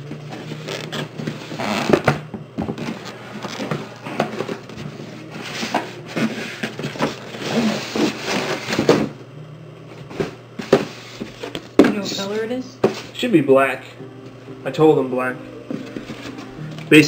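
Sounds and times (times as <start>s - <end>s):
cardboard rustling and scraping: 0.2s - 9.1s, 10.0s - 11.7s.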